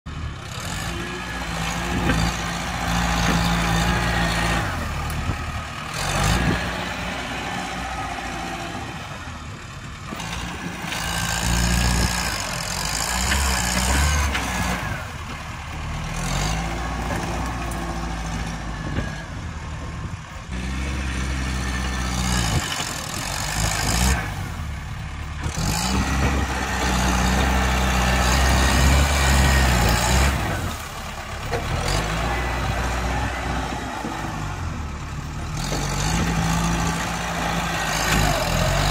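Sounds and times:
dozer blade pushing brush and soil: 0:00.1 - 0:38.9
tractor engine under load: 0:00.1 - 0:38.9.

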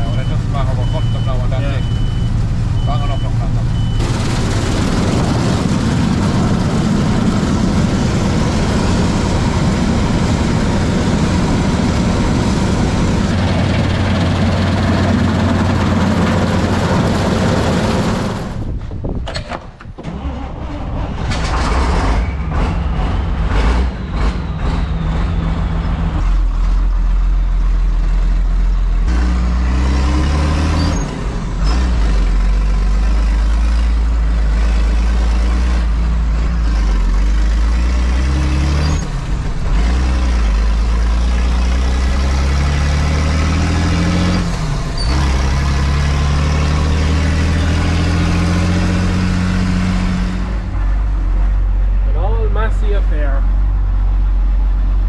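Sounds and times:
diesel engine revving: 0:00.0 - 0:19.2, 0:20.0 - 0:55.0.

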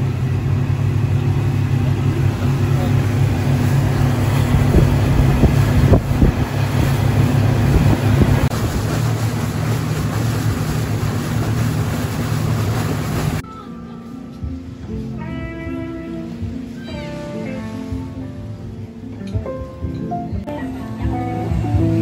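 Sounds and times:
wake spray rushing: 0:00.0 - 0:13.4
speedboat engine hum: 0:00.0 - 0:22.0
wind on microphone: 0:03.4 - 0:13.4.

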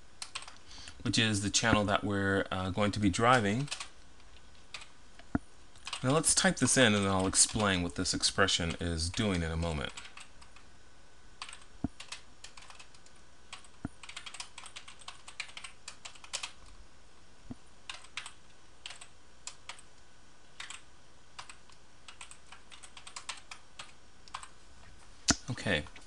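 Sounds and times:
keyboard typing: 0:00.2 - 0:00.6, 0:03.6 - 0:03.9, 0:05.8 - 0:07.8, 0:08.7 - 0:10.6, 0:11.4 - 0:16.7, 0:17.9 - 0:19.9, 0:20.6 - 0:20.8, 0:21.4 - 0:24.5.

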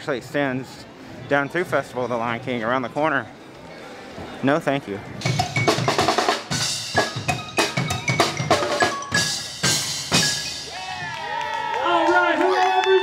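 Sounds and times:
drum kit playing quick rhythm: 0:05.2 - 0:11.0.

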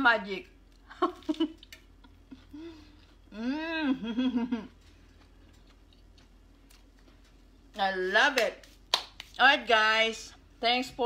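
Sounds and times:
woman humming mmm while chewing: 0:02.3 - 0:04.8.

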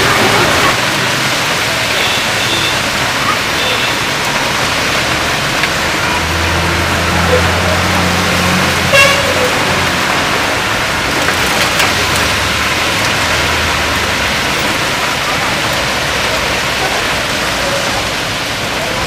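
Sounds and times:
heavy rain: 0:00.0 - 0:19.0
traffic on wet road: 0:00.0 - 0:19.0
vehicle engine hum: 0:00.0 - 0:19.0
car horn toot: 0:08.8 - 0:09.6.

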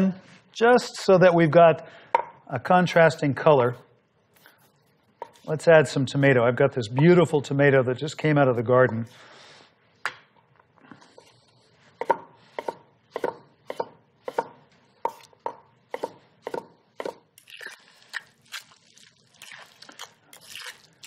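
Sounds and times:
knife slicing tomato on board: 0:12.0 - 0:17.2.

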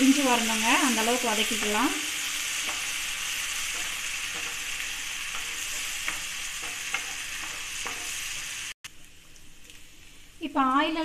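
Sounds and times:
food sizzling in oil: 0:00.0 - 0:11.0
wooden spatula scraping a pan: 0:01.4 - 0:08.7.

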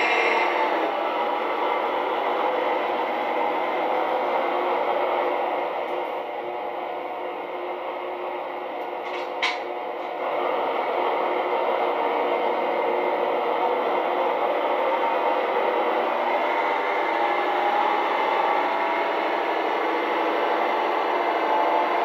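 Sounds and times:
diesel engine sound from small loudspeaker: 0:00.0 - 0:22.0.

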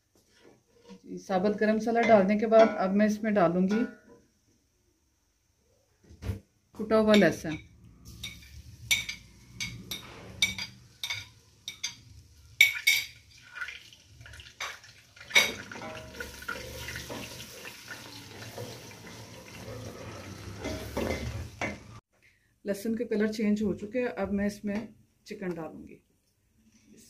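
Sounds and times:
wooden spatula stirring: 0:00.0 - 0:02.2
oil sizzling: 0:07.3 - 0:22.0.

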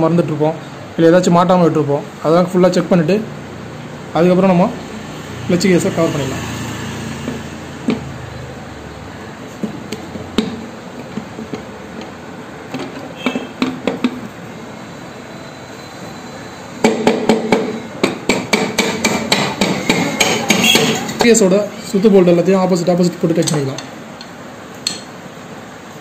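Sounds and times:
metal tools knocking on engine cover: 0:09.6 - 0:14.3.

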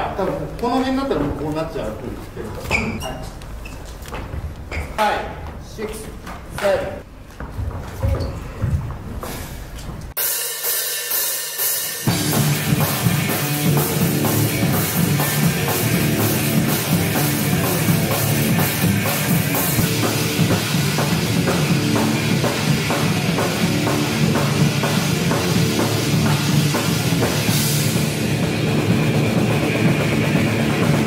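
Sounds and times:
rock band playing: 0:10.2 - 0:31.0.

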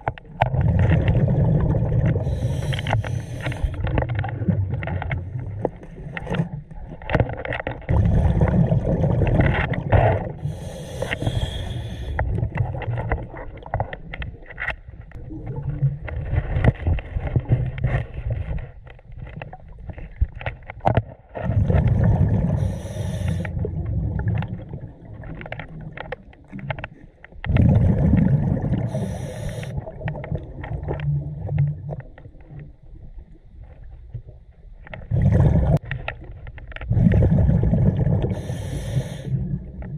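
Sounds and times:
exhaled bubbles bursting: 0:00.0 - 0:02.8, 0:07.8 - 0:10.6, 0:15.1 - 0:16.3, 0:21.4 - 0:22.7, 0:23.5 - 0:26.6, 0:27.5 - 0:32.1, 0:35.0 - 0:35.8, 0:36.9 - 0:38.5.

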